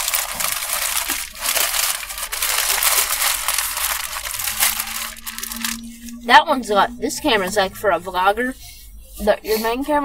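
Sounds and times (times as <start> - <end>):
paper wrapper crinkling: 0.0 - 6.2.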